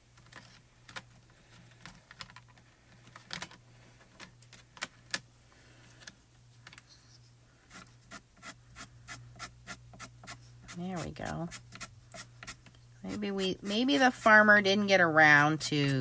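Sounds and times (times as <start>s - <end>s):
pencil strokes on paper: 7.7s - 16.0s.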